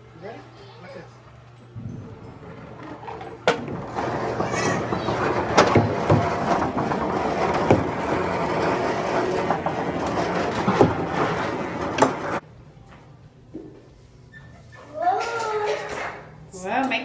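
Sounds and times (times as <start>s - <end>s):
sharp knocks: 1.8s - 12.4s
balls rolling in plastic funnel: 2.0s - 12.4s.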